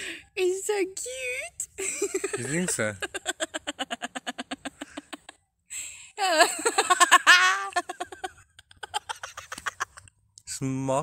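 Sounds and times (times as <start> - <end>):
in-breath: 0.0 - 0.4, 5.7 - 6.2
people laughing: 1.8 - 5.4, 6.2 - 10.1.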